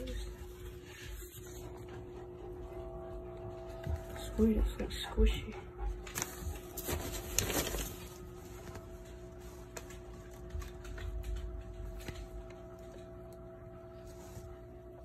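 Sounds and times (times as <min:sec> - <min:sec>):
faint hum: 0:00.0 - 0:15.0
paper and plastic bags crinkling: 0:06.0 - 0:13.4.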